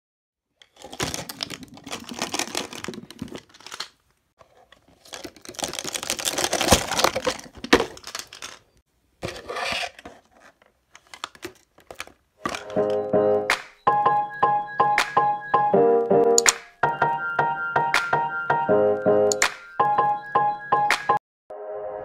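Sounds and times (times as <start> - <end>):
plastic wrap tearing and crinkling: 0.6 - 8.8.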